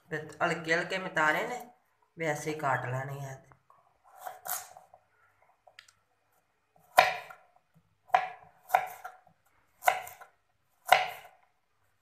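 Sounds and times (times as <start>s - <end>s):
knife chopping on wooden board: 6.8s - 7.4s, 8.1s - 9.2s, 9.8s - 11.4s.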